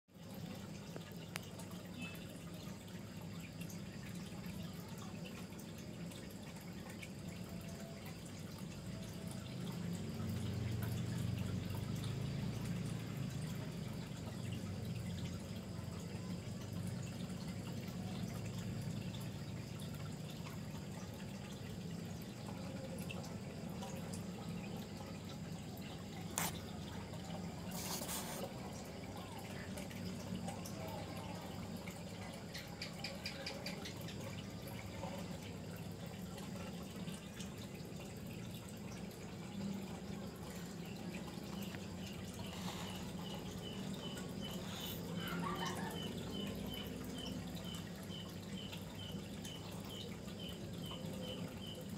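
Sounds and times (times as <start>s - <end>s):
aquarium water bubbling: 0.1s - 51.9s.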